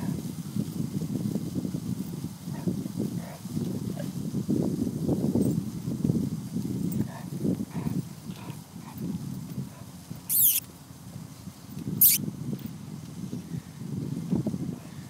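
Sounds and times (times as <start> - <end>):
brief high-pitched sounds: 10.3 - 10.6.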